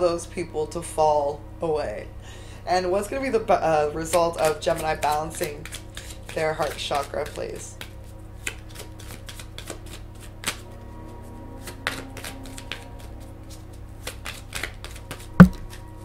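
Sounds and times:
cards being shuffled: 0:04.1 - 0:10.6, 0:11.6 - 0:15.9.

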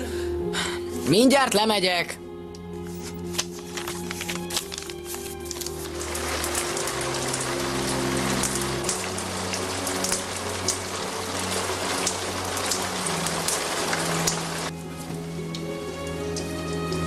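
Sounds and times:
slow music with low notes: 0:00.0 - 0:17.0
steady rain: 0:04.6 - 0:17.0.

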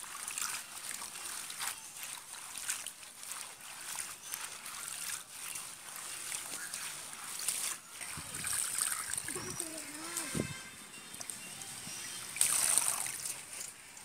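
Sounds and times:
leaves splashing in bowl of water: 0:00.0 - 0:10.6, 0:12.3 - 0:13.7.

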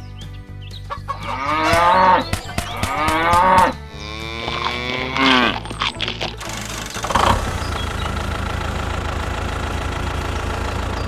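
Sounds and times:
cow mooing: 0:01.2 - 0:06.8.

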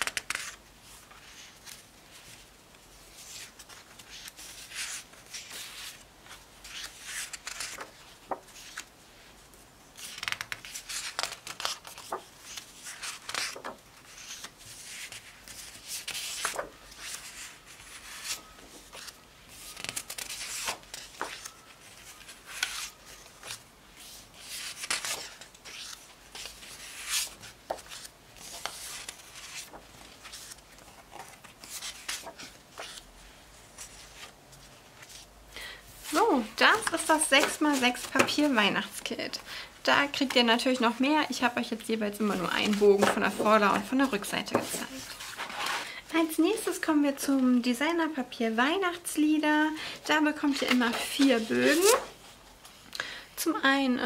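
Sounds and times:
paper swishing and rubbing: 0:42.4 - 0:45.8.

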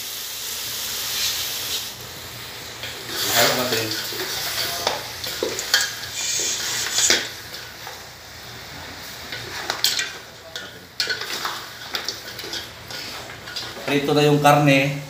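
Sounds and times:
meat sizzling: 0:00.0 - 0:15.0
wooden spatula scraping a pot: 0:02.9 - 0:07.6, 0:10.6 - 0:14.0.

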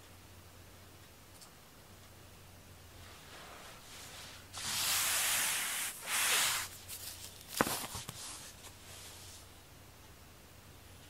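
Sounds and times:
airy hissing: 0:04.0 - 0:06.8.

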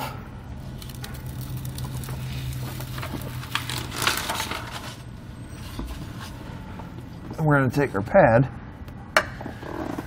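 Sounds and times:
paper rustling and crinkling: 0:00.8 - 0:06.4.

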